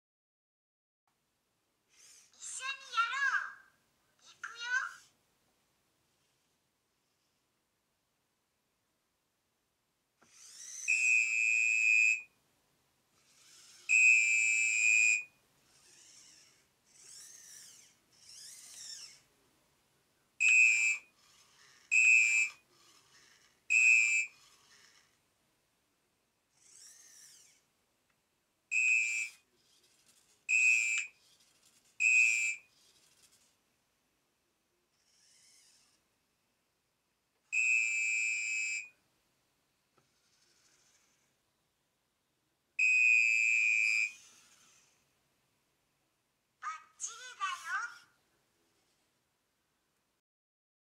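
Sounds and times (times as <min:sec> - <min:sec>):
robot servos whirring: 0:01.9 - 0:02.8, 0:10.2 - 0:12.2, 0:13.2 - 0:19.3, 0:20.4 - 0:25.2, 0:26.5 - 0:27.7, 0:28.8 - 0:33.6, 0:34.9 - 0:36.1, 0:43.5 - 0:45.1.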